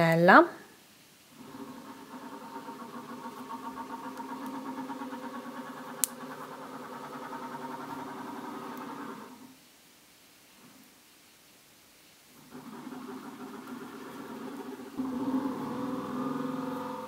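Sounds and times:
motor humming: 1.4 - 9.5, 12.4 - 17.0.

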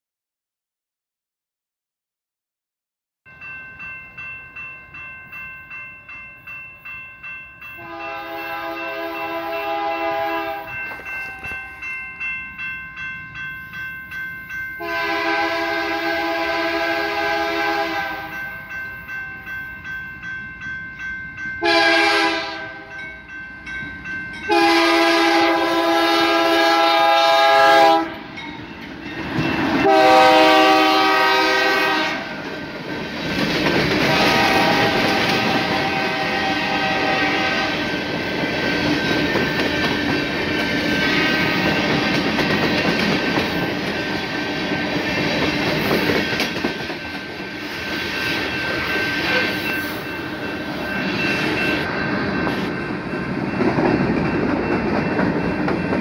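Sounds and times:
railroad crossing bell ringing: 3.3 - 56.0
train engine and wheel noise: 3.3 - 56.0
train horn blasts: 7.8 - 10.7, 14.8 - 18.3, 21.6 - 22.9, 24.5 - 28.2, 29.8 - 32.3, 34.0 - 37.9.

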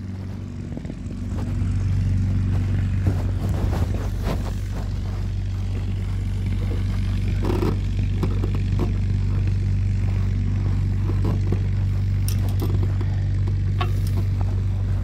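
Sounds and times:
low mechanical drone: 0.0 - 15.0
clicks and scrapes on metal frame: 6.8 - 9.2, 11.0 - 14.7.

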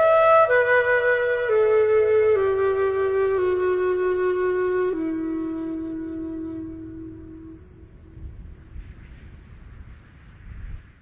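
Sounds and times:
slow flute-like melody: 0.0 - 8.8.

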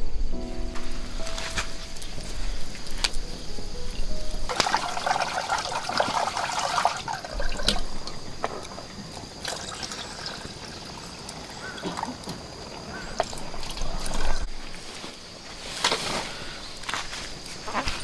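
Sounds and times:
water pouring into metal pot: 4.5 - 14.5.

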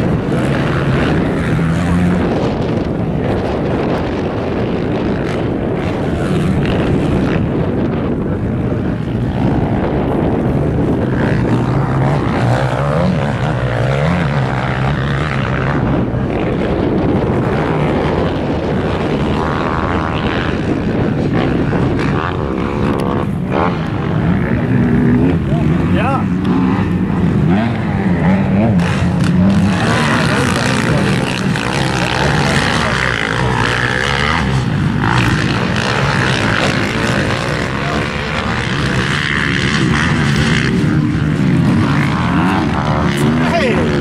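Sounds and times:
dirt bike engines revving: 0.0 - 44.0.

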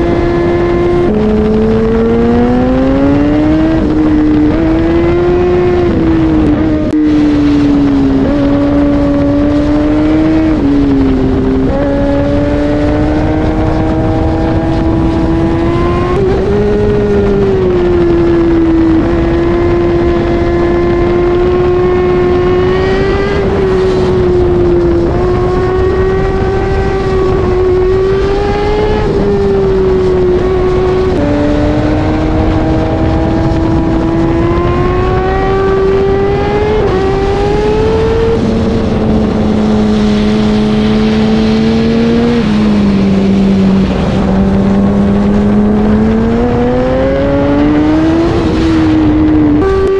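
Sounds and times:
motorcycle engine shifting gears: 0.0 - 49.9.

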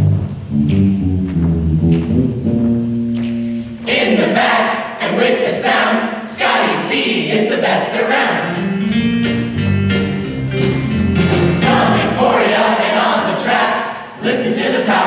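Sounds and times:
drums: 0.0 - 4.2, 8.6 - 12.5
piano: 0.0 - 6.2, 7.8 - 14.2
choir singing: 3.8 - 8.8, 11.3 - 15.0
keyboard: 8.1 - 13.7.

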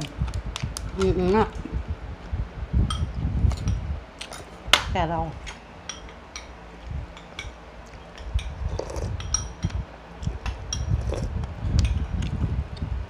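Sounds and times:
spoons clinking on ceramic bowls: 5.8 - 6.6, 7.2 - 9.8, 10.7 - 11.0.

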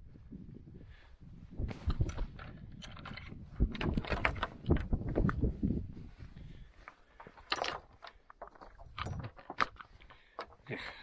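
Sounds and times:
metal chain clinking and rattling: 1.8 - 5.1, 6.8 - 11.0.

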